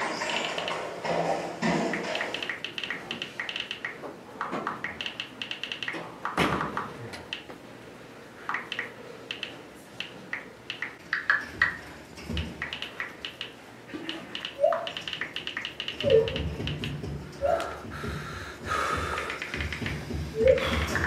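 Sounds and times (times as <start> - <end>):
phone keyboard clicks: 1.9 - 7.5, 8.5 - 17.0, 19.2 - 20.0.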